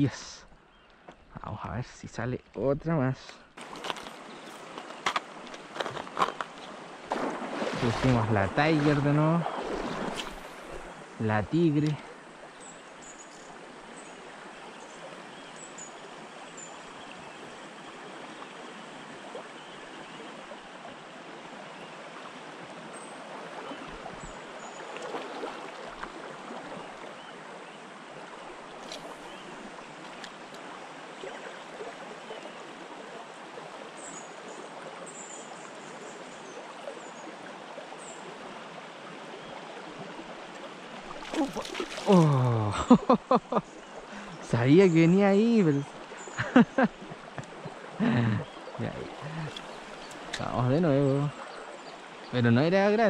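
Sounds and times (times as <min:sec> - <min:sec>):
river rushing over stones: 0:03.6 - 0:15.3, 0:37.4 - 0:46.4.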